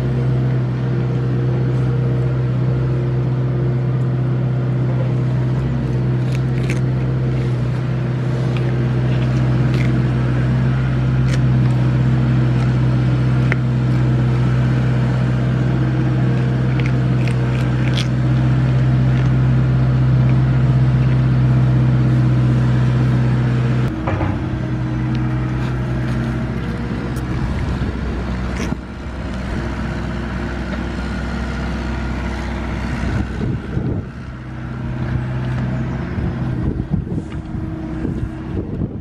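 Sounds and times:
excavator engine humming: 0.0s - 39.0s.

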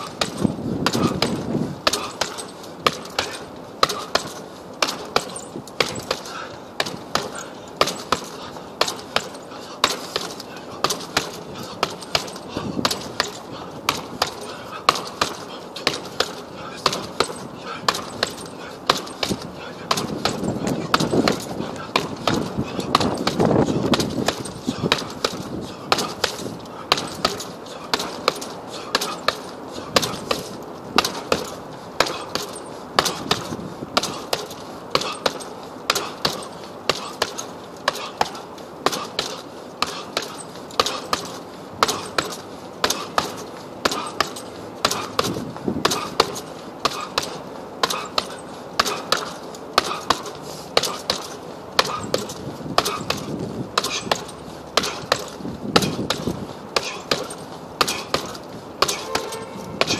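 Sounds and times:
fists thudding on punching bag: 0.0s - 59.9s.

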